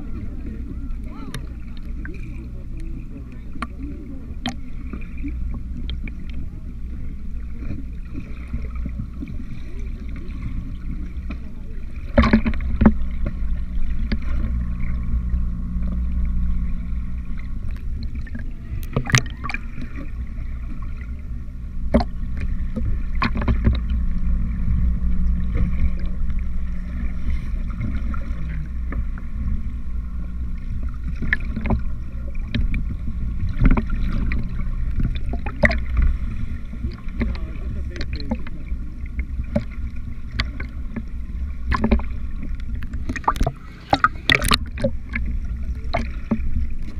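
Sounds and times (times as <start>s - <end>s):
underwater low rumble: 0.0s - 46.9s
sharp clicks and knocks: 21.9s - 24.0s, 31.1s - 36.1s.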